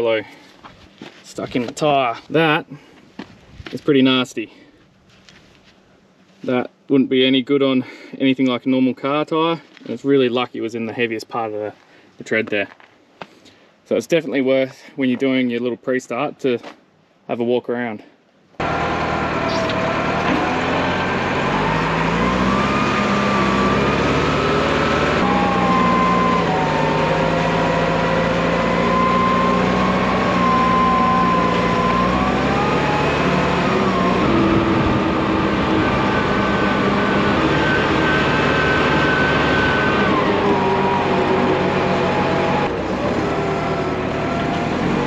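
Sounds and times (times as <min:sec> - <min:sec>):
diesel engine running: 0:18.6 - 0:45.0
machine whine: 0:18.6 - 0:45.0.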